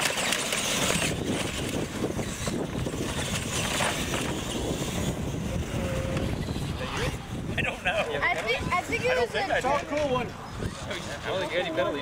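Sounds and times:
toy truck motors running: 0.0 - 7.5
wind buffeting microphone: 0.6 - 12.0.

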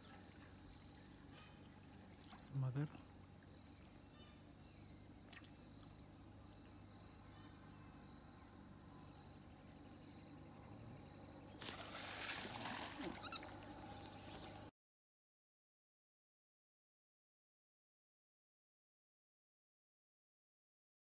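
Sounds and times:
faint insect drone: 0.0 - 14.7.

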